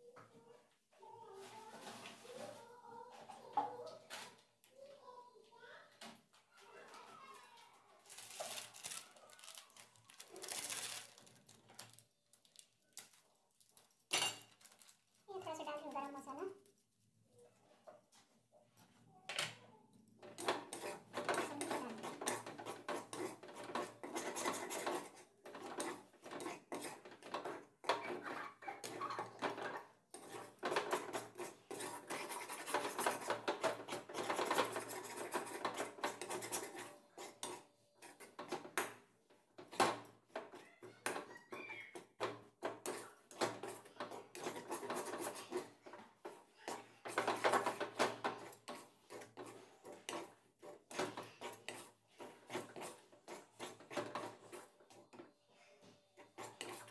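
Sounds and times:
metal ladle scraping a pan: 20.2 - 39.0, 39.6 - 55.3, 56.2 - 56.9.

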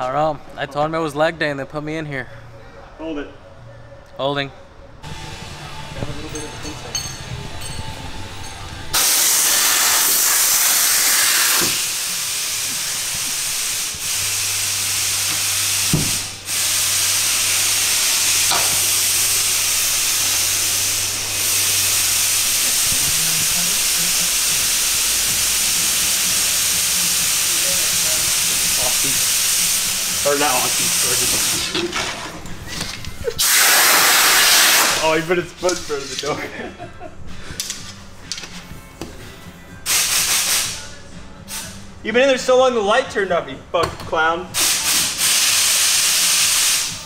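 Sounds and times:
compressed air hissing: 8.9 - 31.8, 33.2 - 36.3, 39.8 - 41.9, 44.6 - 47.0.

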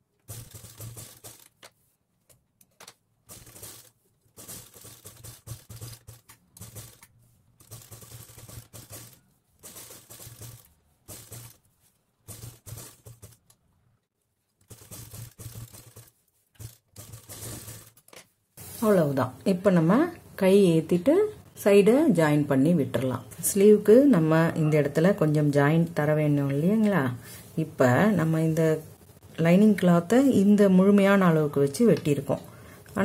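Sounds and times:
sewing machine stitching: 0.2 - 1.7, 3.3 - 13.5, 14.6 - 18.1.

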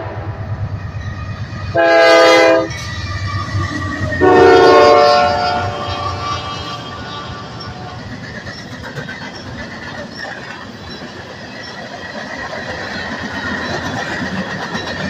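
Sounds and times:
train wheels rumbling on rails: 0.0 - 15.0
high wheel squeal: 2.5 - 11.8.

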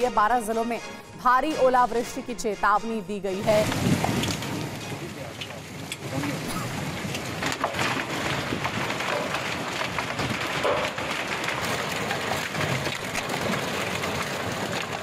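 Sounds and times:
heavy rain and hail falling: 3.4 - 15.0.

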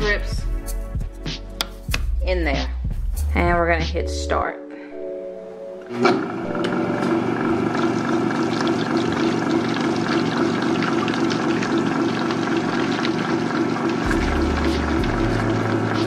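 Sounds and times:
blender motor running: 5.9 - 16.0
blade churning water: 7.0 - 16.0.

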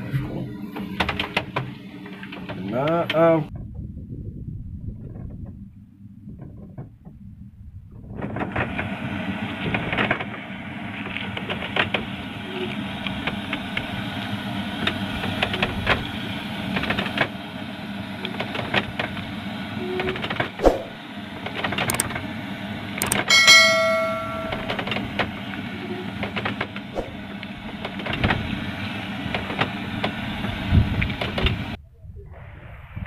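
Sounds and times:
boat engine humming: 17.4 - 31.3.

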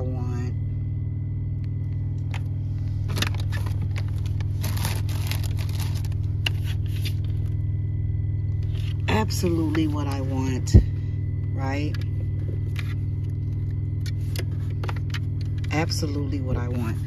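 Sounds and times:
plastic bags rustling: 3.0 - 7.5.

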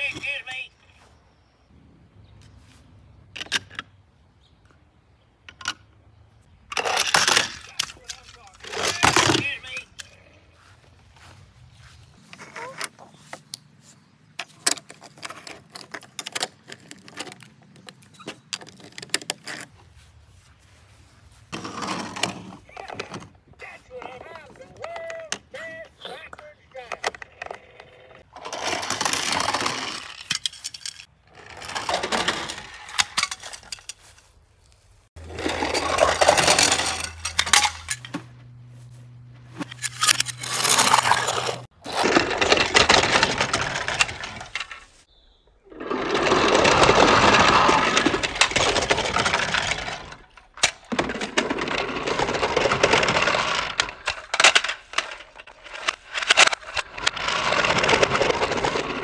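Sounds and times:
plastic toys clattering: 6.7 - 11.3, 14.3 - 19.8, 21.5 - 34.3, 35.2 - 38.2, 39.6 - 45.0, 45.7 - 59.0.

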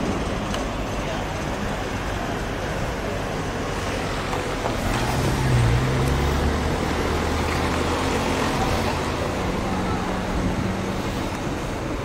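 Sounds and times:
steady traffic noise: 0.0 - 12.0
car passing by: 3.7 - 12.0.

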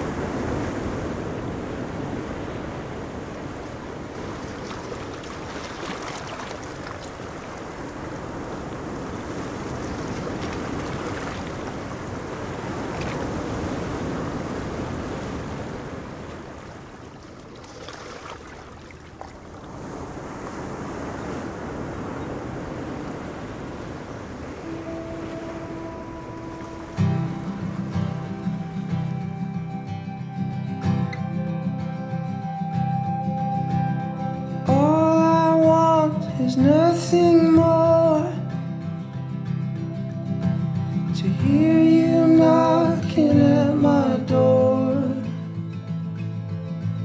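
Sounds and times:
waves washing on sandy beach: 0.0 - 29.8.

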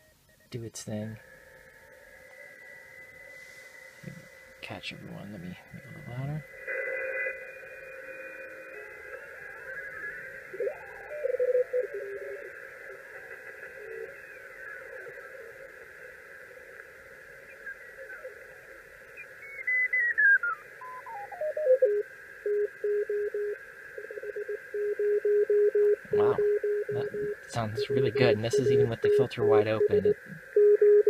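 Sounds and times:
radio band hiss: 0.0 - 1.2, 2.3 - 30.7
morse code tones: 20.4 - 31.0
tone sliding down in pitch: 26.0 - 30.1.

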